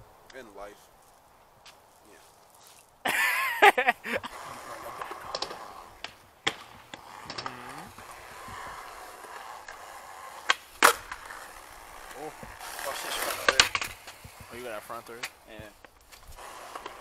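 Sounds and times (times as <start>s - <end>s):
skateboard wheels rolling on concrete: 0.0s - 17.0s
skateboard clacks: 4.3s - 17.0s.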